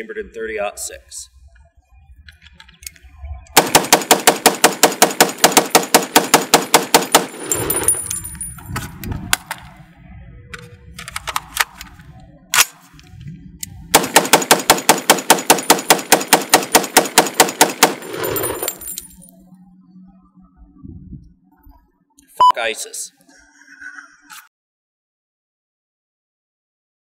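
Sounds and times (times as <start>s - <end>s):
rapid rifle gunshots: 3.6s - 7.6s, 13.9s - 18.3s
rifle reloading clicks: 11.0s - 12.8s.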